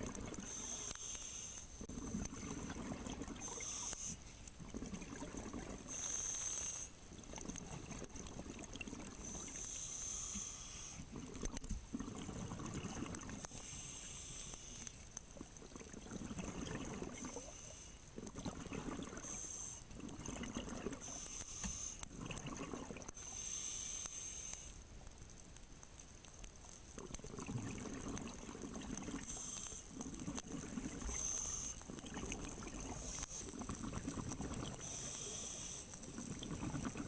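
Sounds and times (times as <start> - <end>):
bubbling exhaled air: 15.7 - 17.5.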